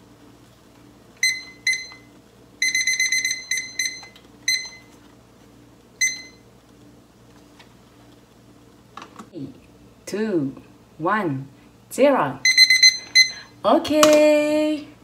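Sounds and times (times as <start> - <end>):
digital kitchen timer beeping: 1.2 - 4.9, 6.0 - 6.4, 12.4 - 13.5.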